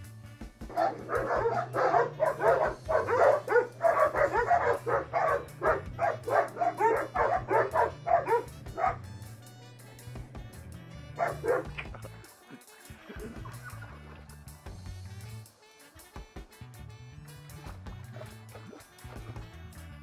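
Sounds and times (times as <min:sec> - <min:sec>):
dogs barking: 0:00.7 - 0:10.3, 0:11.1 - 0:12.3.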